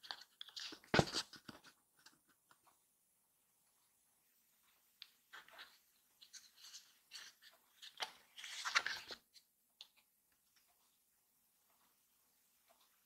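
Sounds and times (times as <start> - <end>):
paper rustling and crinkling: 0.0 - 2.4, 5.3 - 9.4.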